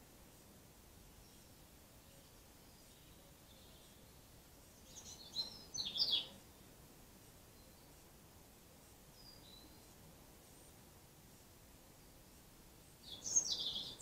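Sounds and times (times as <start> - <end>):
small bird chirping: 1.2 - 6.6, 9.1 - 10.0, 12.8 - 14.0.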